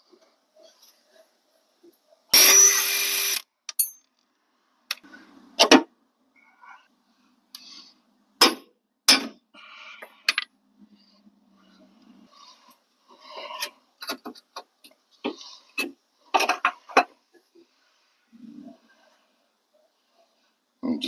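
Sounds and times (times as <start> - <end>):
power tool running: 2.4 - 3.4.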